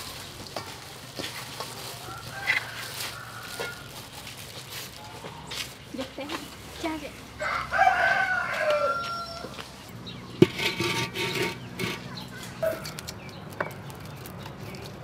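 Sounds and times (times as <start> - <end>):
rooster crowing: 2.0 - 3.9, 7.4 - 9.7
wok being scraped: 10.4 - 13.0.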